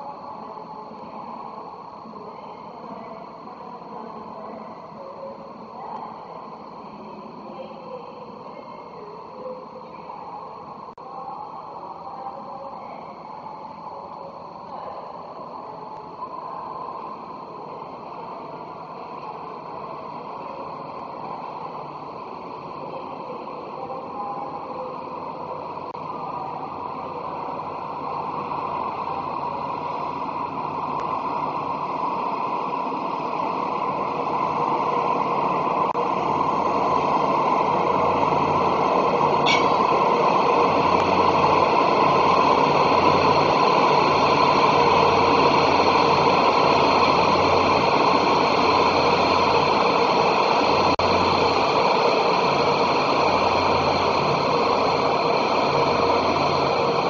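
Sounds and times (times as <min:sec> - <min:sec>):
train engine and running noise: 0:00.0 - 0:57.0
high squeak: 0:39.4 - 0:39.9.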